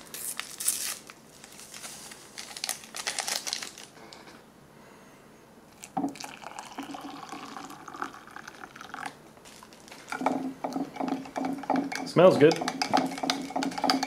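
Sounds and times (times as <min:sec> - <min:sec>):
water poured into a cup: 0:05.9 - 0:09.2
spoon stirring in a cup: 0:10.1 - 0:14.0.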